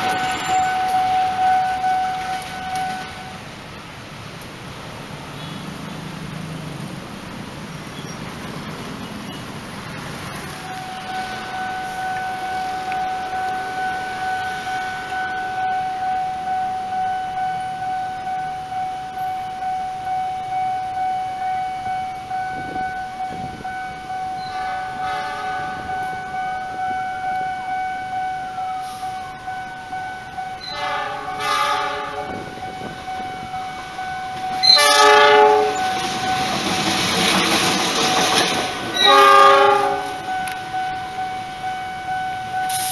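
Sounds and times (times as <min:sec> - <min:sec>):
locomotive horn: 0:00.0 - 0:03.5, 0:10.6 - 0:18.5, 0:22.1 - 0:29.5, 0:30.2 - 0:36.6, 0:38.1 - 0:42.9
level-crossing warning signal: 0:00.0 - 0:03.9, 0:07.8 - 0:42.9.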